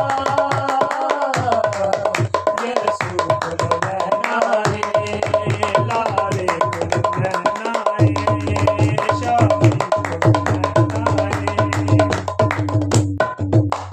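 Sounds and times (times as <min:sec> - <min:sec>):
hand drum playing: 0:01.4 - 0:13.9
voices singing: 0:02.6 - 0:12.1.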